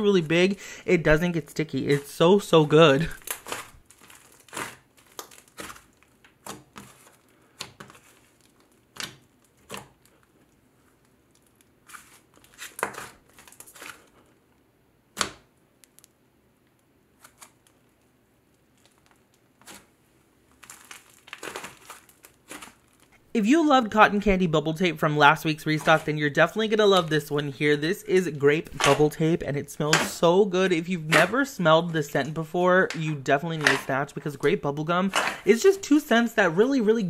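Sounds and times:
slime squeezed by hand crackling: 20.5s - 23.2s.

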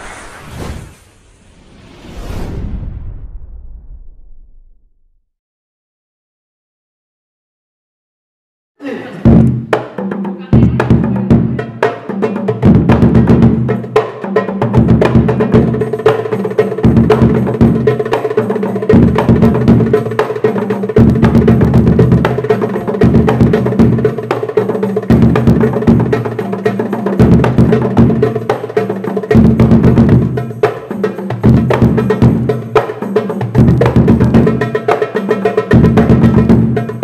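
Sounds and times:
hand drums in fast rhythm: 9.2s - 37.0s
bass frame drum booming: 9.3s - 9.8s, 10.6s - 11.6s, 21.0s - 22.4s.

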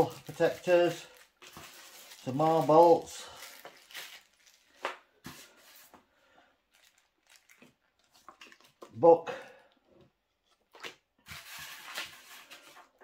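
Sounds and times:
plastic bag crinkling: 0.0s - 5.0s, 6.7s - 8.9s.

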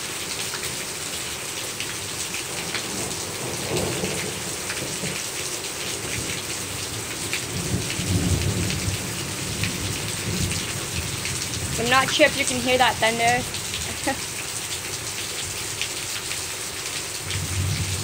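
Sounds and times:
heavy rain pattering: 0.0s - 18.0s
low rumble of thunder: 2.6s - 5.2s, 7.4s - 12.1s, 17.2s - 18.0s.

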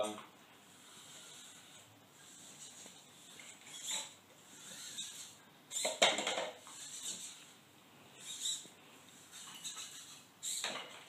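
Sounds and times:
servo motors whirring: 0.6s - 6.0s, 6.6s - 7.6s, 8.2s - 10.8s.

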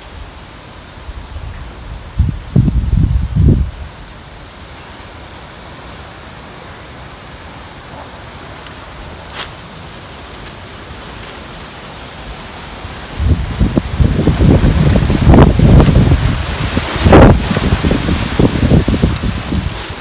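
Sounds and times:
breeze through leafy plants: 0.0s - 20.0s.

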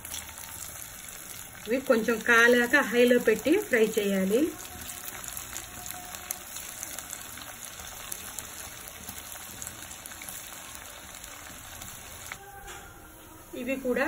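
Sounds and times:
fritters sizzling in hot oil: 0.0s - 12.6s.

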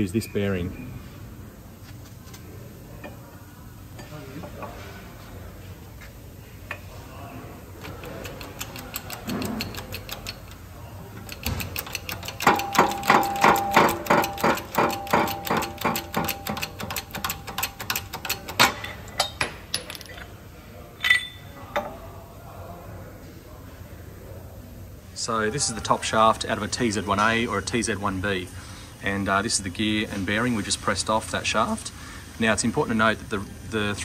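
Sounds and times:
hydraulic press metallic clicks: 7.8s - 10.6s, 11.2s - 20.2s
metal clink: 11.3s - 20.3s, 21.0s - 22.0s.

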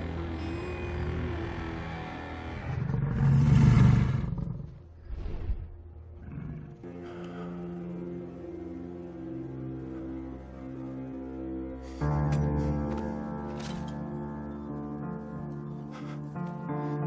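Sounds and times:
low film score: 0.0s - 17.0s
wolf growling: 2.3s - 4.9s, 6.2s - 6.9s.

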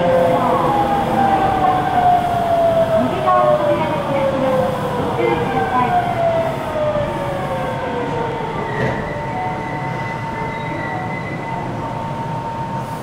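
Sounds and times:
wheels rumbling on rail: 0.0s - 13.0s
brake squeal: 8.8s - 11.7s.

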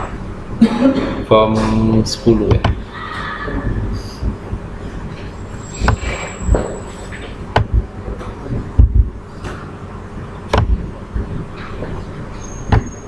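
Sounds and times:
low background rumble: 0.0s - 13.0s
low dull thumps: 0.9s - 3.0s, 3.6s - 13.0s
computer mouse clicking: 10.5s - 11.3s.

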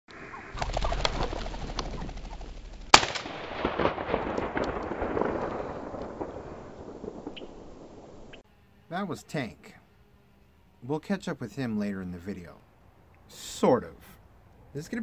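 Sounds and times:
rustling through dry brush: 0.2s - 8.4s
shotgun shot: 2.9s - 6.4s.

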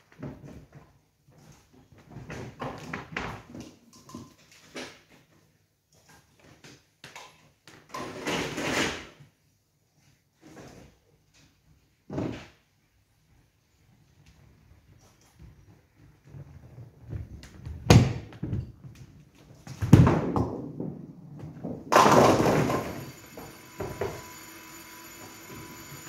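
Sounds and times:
bowling machinery clatter: 21.8s - 26.0s.

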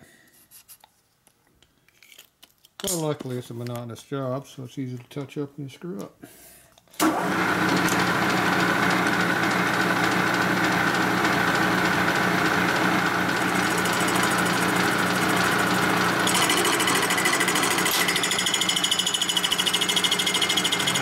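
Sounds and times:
milling machine whining: 7.0s - 21.0s.

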